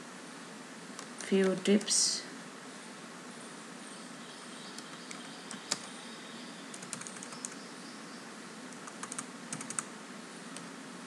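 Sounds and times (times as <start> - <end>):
faint hiss: 0.0 - 11.0
computer keyboard keystrokes: 4.8 - 5.9, 6.7 - 7.6, 8.7 - 9.9.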